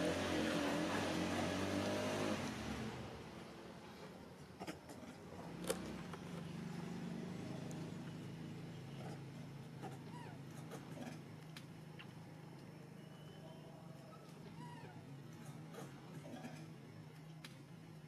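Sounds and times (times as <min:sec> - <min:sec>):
vehicle engine running: 0:00.0 - 0:03.5
faint low hum: 0:02.8 - 0:18.0.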